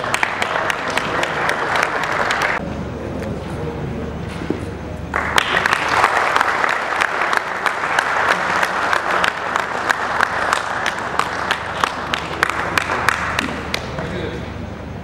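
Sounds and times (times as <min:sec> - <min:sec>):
audience applauding: 0:00.0 - 0:02.6, 0:05.1 - 0:14.1
sharp close claps: 0:00.0 - 0:02.6, 0:05.1 - 0:14.2.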